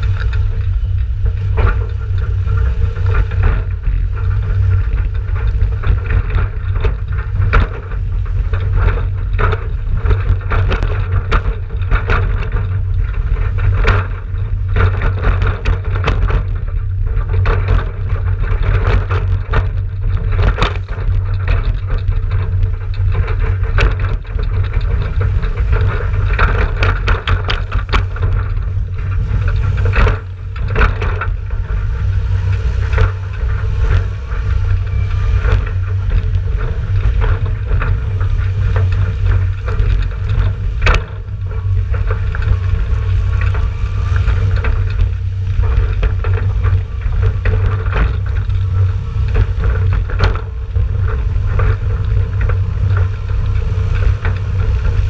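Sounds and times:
tractor diesel engine rumble: 0.0 - 55.0
trailer knocks and rattles: 0.0 - 55.0.

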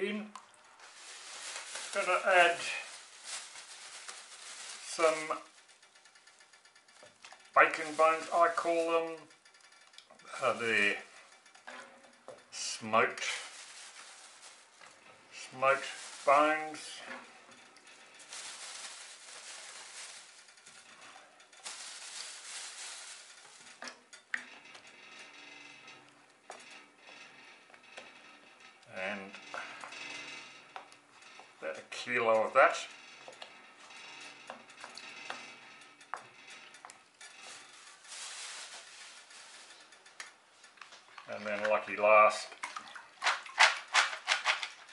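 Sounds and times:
plastic bag rustling: 0.5 - 6.4, 7.0 - 9.1, 12.6 - 24.1, 37.0 - 44.9.

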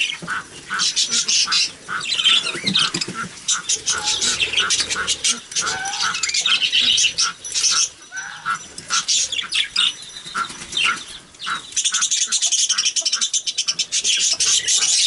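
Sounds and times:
budgerigars chattering and chirping: 0.0 - 15.0.

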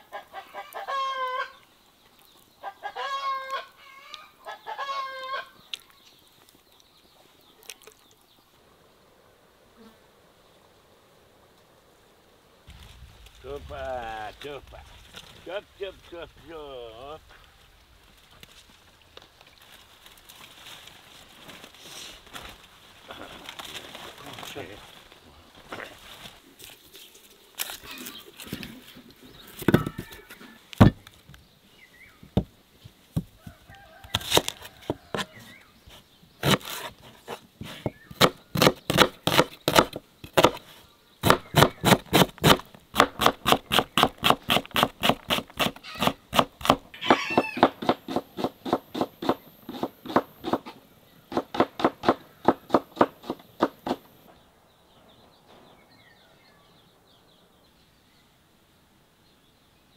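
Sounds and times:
knife chopping on wooden board: 38.2 - 40.6.

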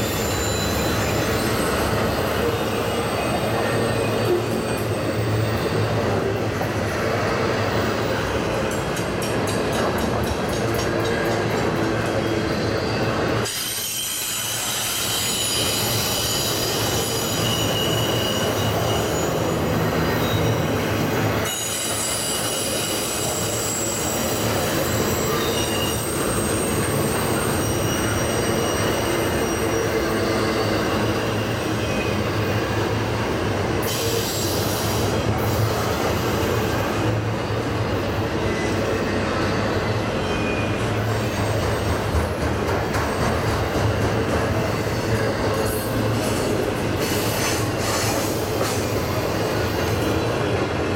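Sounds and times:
wheels squealing: 0.0 - 8.2, 12.0 - 41.9
train wheels rumbling on rail: 0.0 - 50.9.

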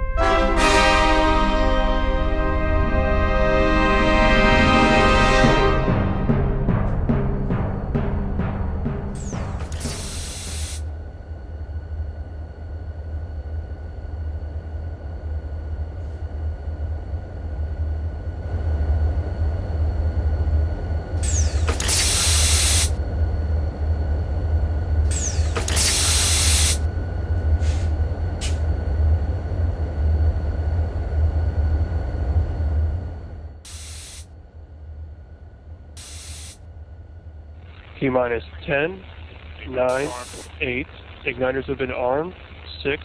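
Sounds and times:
gas venting hisses: 9.7 - 10.8, 21.2 - 22.9, 25.2 - 26.8, 33.7 - 34.3, 36.0 - 36.6, 39.9 - 40.5.

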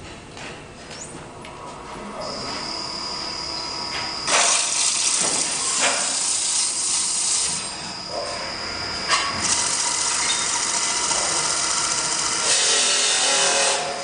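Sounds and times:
wood lathe high whine: 2.2 - 14.0
cutting tool hissing on wood: 12.4 - 13.9.

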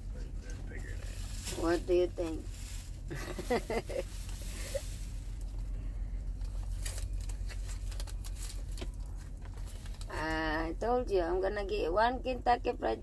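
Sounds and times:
low hum in truck cab: 0.0 - 13.0
wallet and paper money rustling: 6.3 - 10.2.

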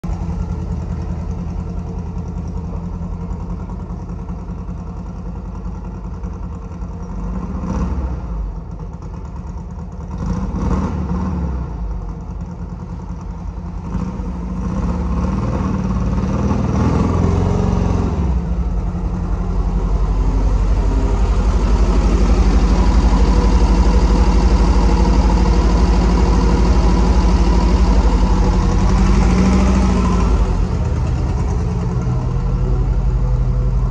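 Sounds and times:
buggy engine revving: 7.0 - 9.2, 9.8 - 33.9.

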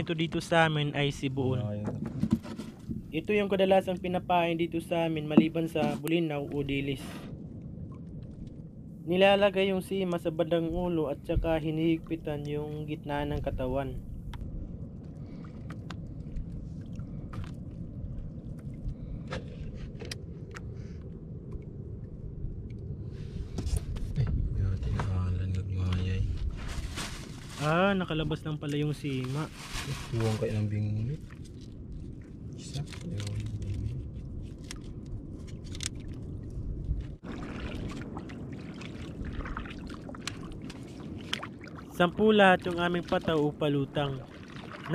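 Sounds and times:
water lapping against boat hull: 0.0 - 4.2, 11.3 - 22.9, 28.6 - 44.9
steady low rumble: 2.9 - 44.9
small splashes and drips: 35.7 - 42.0, 44.1 - 44.9.

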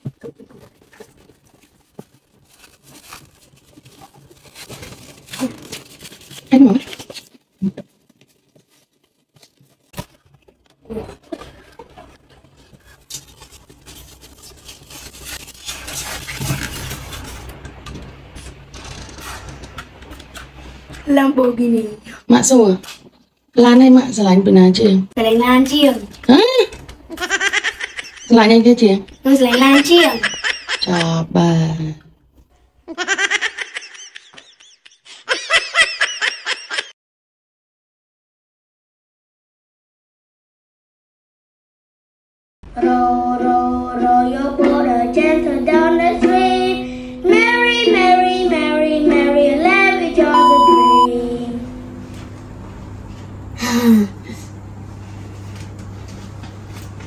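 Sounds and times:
scraping and rubbing: 0.0 - 21.0
sharp clicks and rustles: 12.4 - 21.0
person giggling: 29.4 - 31.2, 32.9 - 36.9
steady low hum: 50.1 - 57.0.

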